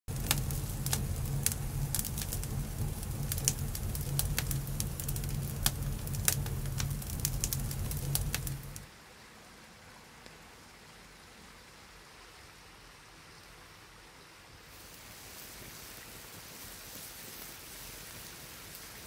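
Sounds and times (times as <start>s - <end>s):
campfire crackling: 0.1s - 8.9s, 14.8s - 19.0s
low rumble: 0.1s - 8.9s.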